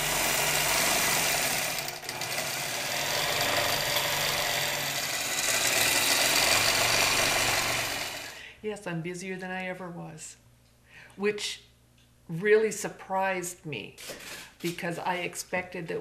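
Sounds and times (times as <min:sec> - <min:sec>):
quilting machine stitching: 0:00.0 - 0:08.4.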